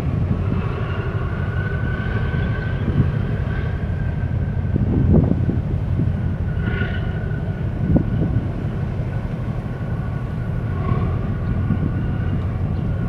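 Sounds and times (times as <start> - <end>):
faint whine: 0.0 - 13.0
ship engine rumble: 0.0 - 13.0.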